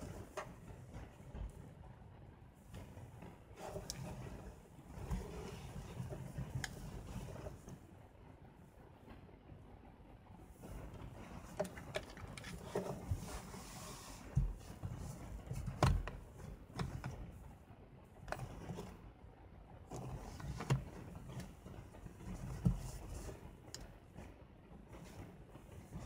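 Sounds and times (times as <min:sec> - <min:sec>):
soft rustling: 0:02.6 - 0:07.9, 0:10.6 - 0:19.2, 0:19.8 - 0:26.0.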